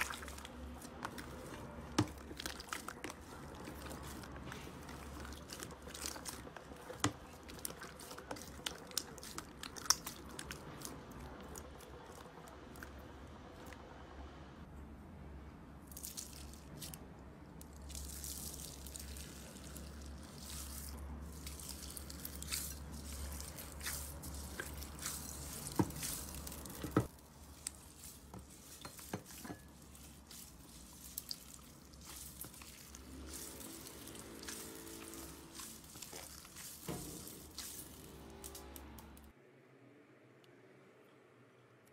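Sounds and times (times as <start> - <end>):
slime squishing and popping: 0.0 - 11.6.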